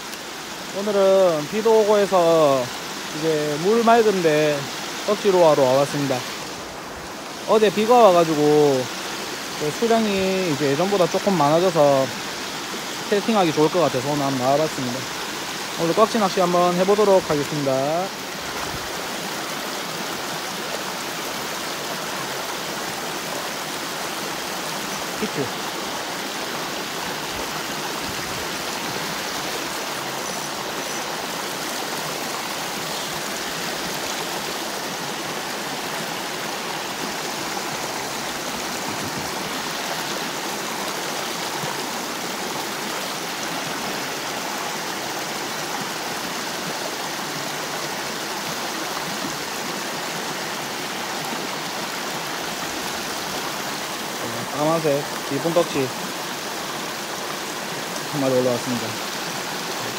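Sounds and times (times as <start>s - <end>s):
stream rushing over stones: 0.0s - 59.9s.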